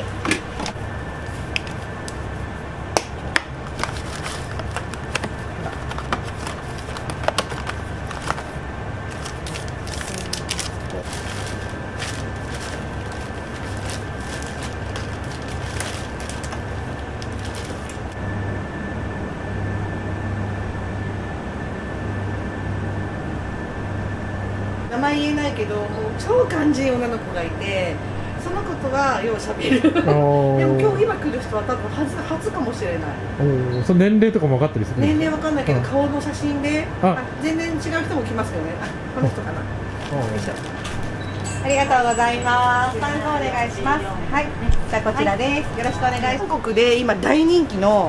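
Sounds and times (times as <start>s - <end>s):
steady low hum: 0.0s - 48.0s
plastic packaging crinkling: 3.5s - 18.2s, 39.9s - 41.2s
faint high whine: 16.7s - 47.8s.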